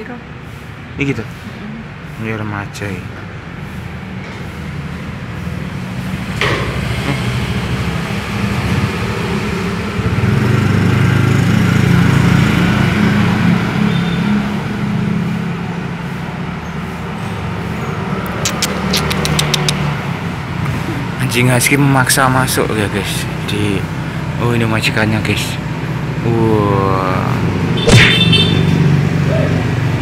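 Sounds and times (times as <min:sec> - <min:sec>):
sharp clicks: 0:18.3 - 0:19.9.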